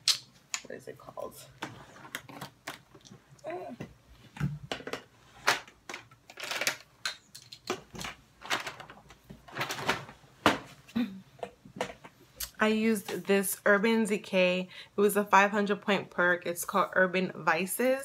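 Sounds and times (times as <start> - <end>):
plastic containers clattering: 4.4 - 10.8.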